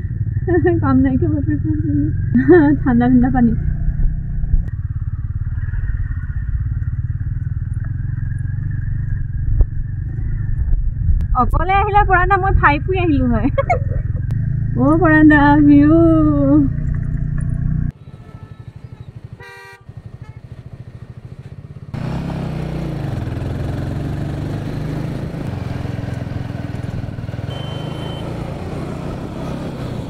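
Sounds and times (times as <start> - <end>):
motorcycle engine running: 0.0 - 30.0
vehicle horn: 17.9 - 20.6, 27.5 - 28.4.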